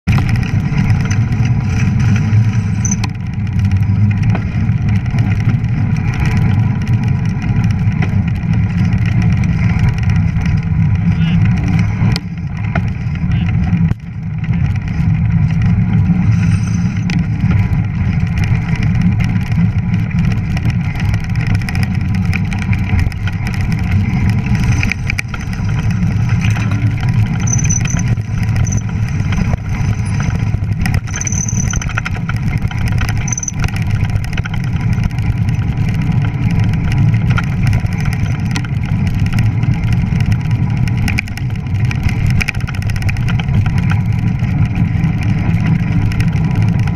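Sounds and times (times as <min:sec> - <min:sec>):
fat tyres rolling on snow: 0:00.0 - 0:46.9
bike knocks and rattles: 0:00.1 - 0:46.9.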